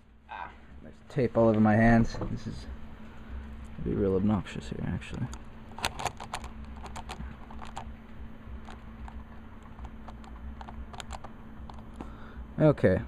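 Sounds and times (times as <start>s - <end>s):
faint low hum: 0.0s - 13.0s
tape crackling: 5.0s - 12.2s.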